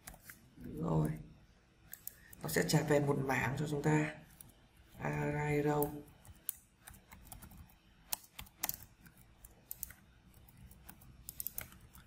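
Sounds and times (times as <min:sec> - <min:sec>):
keyboard typing: 0:05.7 - 0:12.0.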